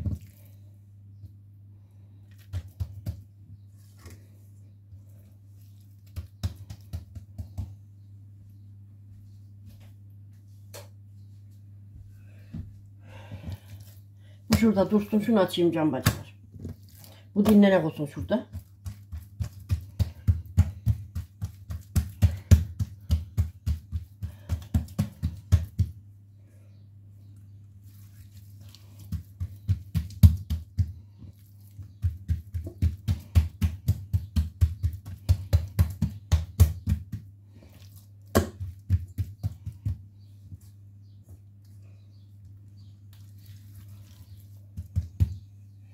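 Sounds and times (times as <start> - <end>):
palms patting dough: 0.0 - 8.4, 11.9 - 26.6, 27.2 - 45.9.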